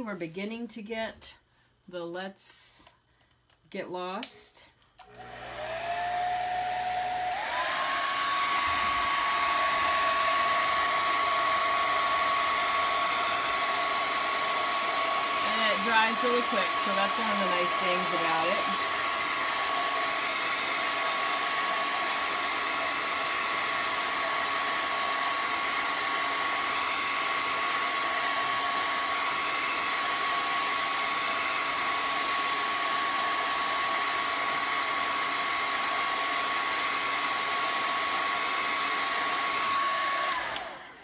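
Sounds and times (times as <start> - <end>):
blow dryer running: 5.0 - 41.0.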